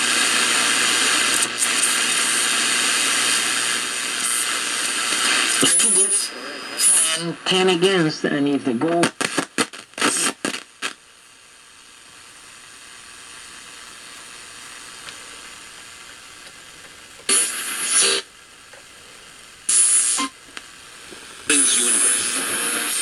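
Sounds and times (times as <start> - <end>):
radio loudspeaker hissing: 0.0 - 23.0
broadcast voice: 5.6 - 9.4, 21.5 - 23.0.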